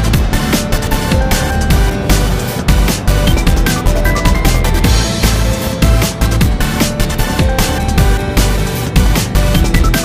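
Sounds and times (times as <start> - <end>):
electronic music with heavy bass: 0.0 - 10.0.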